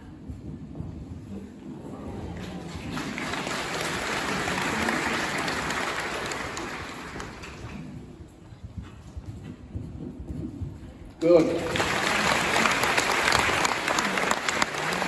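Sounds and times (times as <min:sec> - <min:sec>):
audience applauding: 0:02.4 - 0:07.8, 0:11.3 - 0:15.0.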